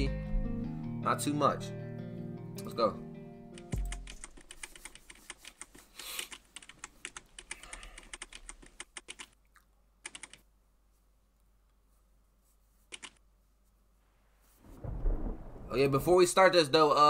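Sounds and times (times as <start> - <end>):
fast laptop keyboard typing: 3.7 - 9.4, 10.0 - 10.4, 12.9 - 13.2
low thump: 14.7 - 16.0.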